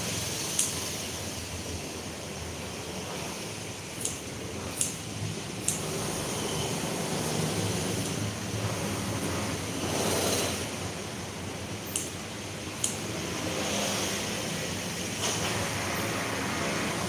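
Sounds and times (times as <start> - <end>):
steady rushing noise: 0.0 - 17.0
scissors snipping greens: 4.0 - 5.0, 11.8 - 12.2, 12.8 - 13.0.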